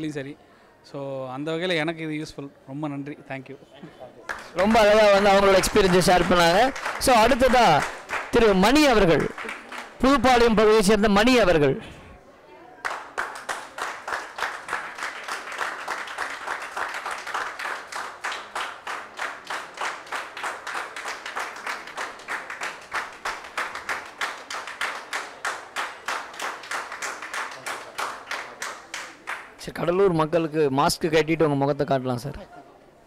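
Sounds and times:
hands clapping: 4.3s - 10.5s, 12.8s - 29.7s.

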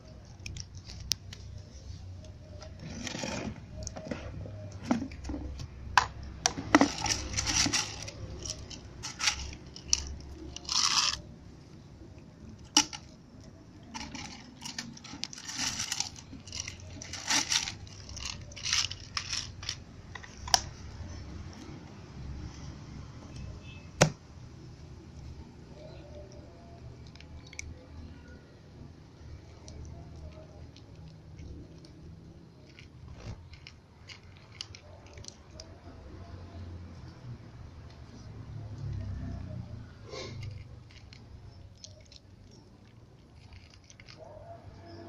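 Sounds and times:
cats crunching dry kibble: 0.0s - 1.7s, 6.2s - 21.7s, 29.2s - 36.0s, 40.3s - 44.3s
kibble scattering on concrete: 6.0s - 11.2s
plastic bag crinkling: 6.6s - 11.3s, 13.8s - 20.7s, 40.5s - 44.2s.

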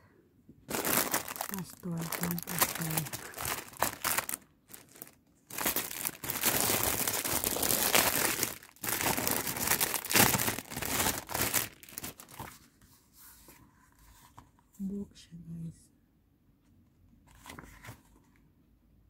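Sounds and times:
plastic gift wrap crinkling: 0.6s - 12.6s.

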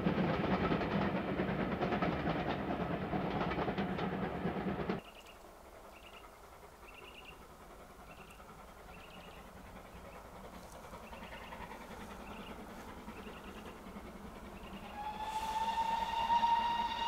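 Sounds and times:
steam train passing: 0.0s - 17.0s
small bird chirping: 5.0s - 7.4s.

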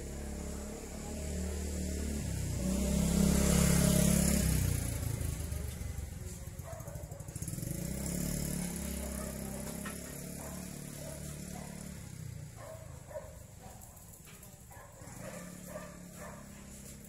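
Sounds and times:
vehicle engine passing: 0.0s - 17.0s.

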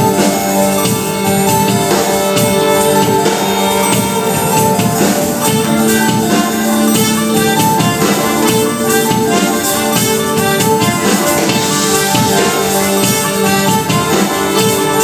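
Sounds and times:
drums: 0.0s - 15.0s
violin sustained notes: 0.0s - 15.0s.

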